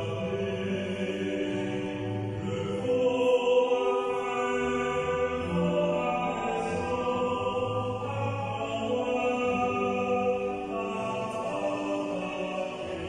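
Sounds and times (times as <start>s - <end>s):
slow hymn singing: 0.0s - 13.0s.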